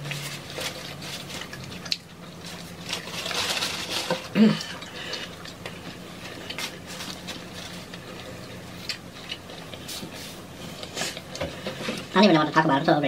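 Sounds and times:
faint steady hum: 0.0 - 13.0
chewing mouth clicks and smacks: 1.3 - 2.4.

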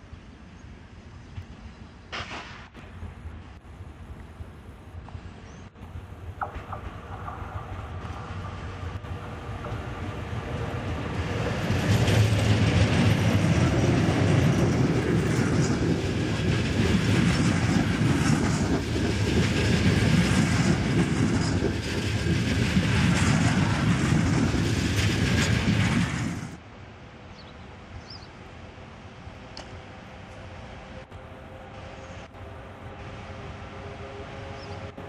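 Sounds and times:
train wheels rumbling on rail: 0.0 - 26.6, 28.8 - 35.0
clickety-clack over rail joints: 6.4 - 26.6.

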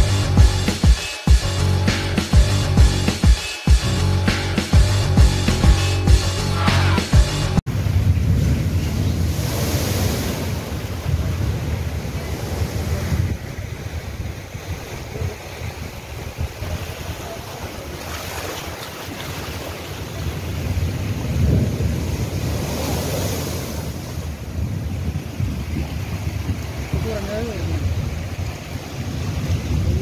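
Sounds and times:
surf breaking over seawall: 7.7 - 30.0
wind rumbling on microphone: 7.7 - 30.0.

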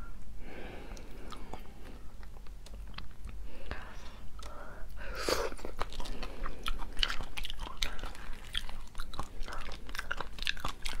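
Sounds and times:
person chewing: 0.9 - 3.4, 5.2 - 11.0.

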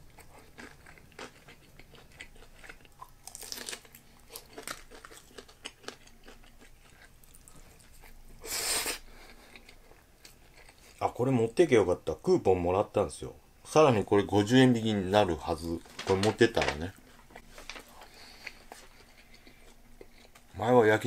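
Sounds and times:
chewing: 0.1 - 8.2, 9.1 - 11.0, 17.0 - 20.5
crisp crunches of fried food: 0.2 - 8.2.

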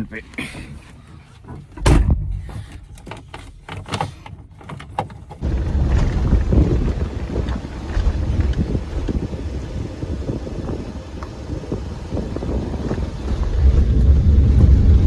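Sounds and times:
handling knocks and clicks: 0.6 - 6.1
loud thump: 1.8 - 2.7
wind buffeting microphone: 5.4 - 15.0.

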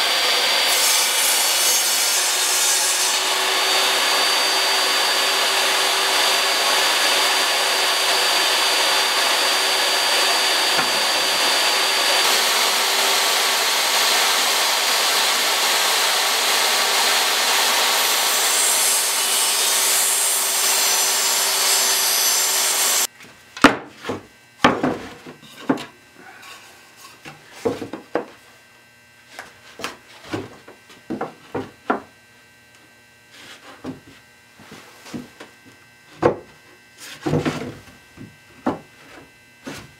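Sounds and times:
table saw ripping board: 0.3 - 25.2
boards knocking and clattering: 10.2 - 11.7, 23.6 - 25.9, 27.3 - 28.4, 29.8 - 32.1, 36.2 - 36.5, 37.2 - 38.9.

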